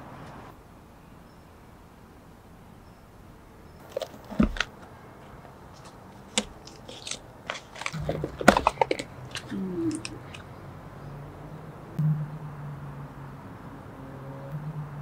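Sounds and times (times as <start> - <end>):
faint low hum: 0.0 - 15.0
cardboard box taps and rustles: 3.9 - 4.7.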